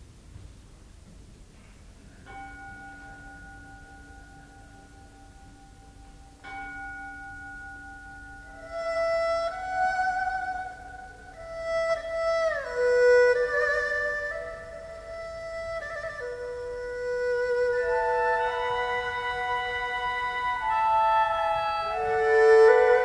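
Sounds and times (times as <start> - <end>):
soft bell-like strikes ringing: 2.3 - 8.8
sustained melody with vibrato: 2.3 - 23.0.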